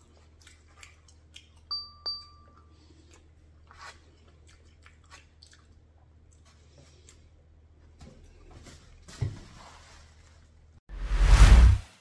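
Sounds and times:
faint chewing: 0.0 - 7.8
bell-like dings: 1.7 - 2.6.

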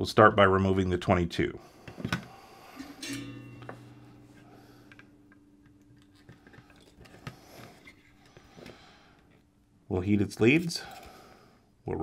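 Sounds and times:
guitar chord ringing: 2.7 - 7.0.

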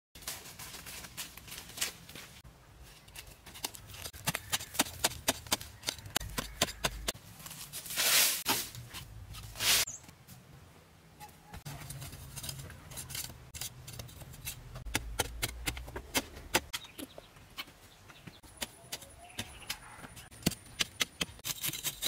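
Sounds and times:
footsteps crunching on leaves: 0.2 - 3.0
loose earth scraping: 0.2 - 10.1, 11.6 - 16.5
hand tool chopping into soil: 3.2 - 7.2.

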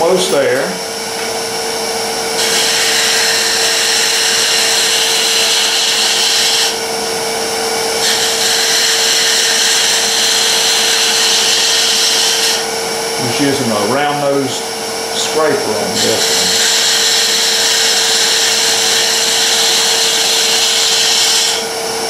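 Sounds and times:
lathe motor hum: 0.0 - 22.0
tool cutting spinning wood: 0.0 - 22.0.

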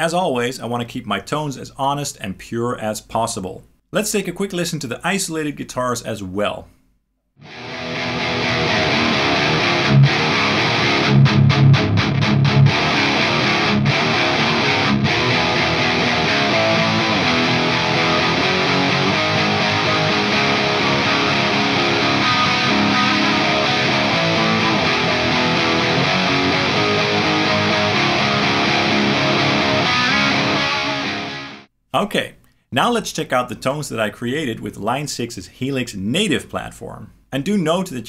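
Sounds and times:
distorted electric guitar riff: 7.4 - 31.7.

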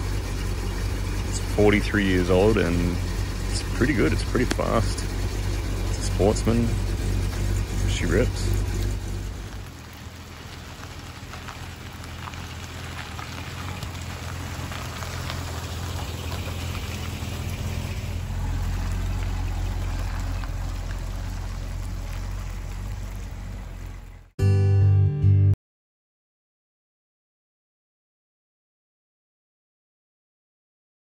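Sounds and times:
steady rain falling: 0.0 - 24.3
motorhome engine driving past: 0.0 - 24.4
loud music: 24.4 - 25.5.

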